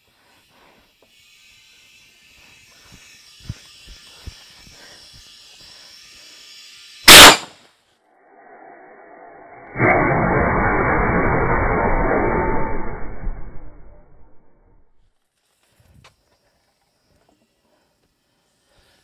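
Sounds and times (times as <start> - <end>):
loud blast of air: 7.1 - 7.5, 9.5 - 14.8.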